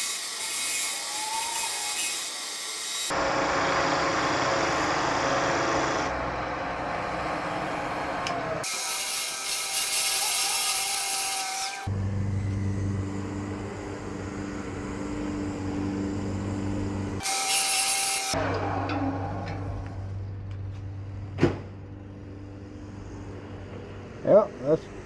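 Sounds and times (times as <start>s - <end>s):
lathe motor hum: 11.9s - 17.2s.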